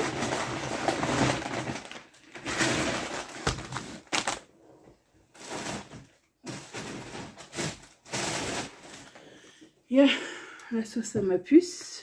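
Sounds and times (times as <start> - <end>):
shopping bag rustling: 0.0 - 4.5, 5.3 - 9.2.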